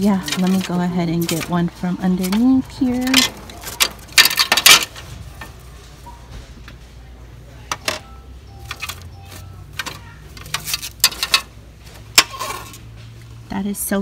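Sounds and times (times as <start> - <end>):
plastic trays clattering: 0.0 - 5.6, 7.6 - 13.0.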